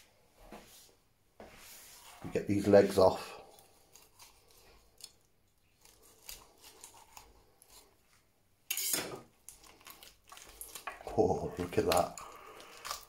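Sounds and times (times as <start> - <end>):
knife scraping roast skin: 3.4 - 8.0, 11.8 - 13.0.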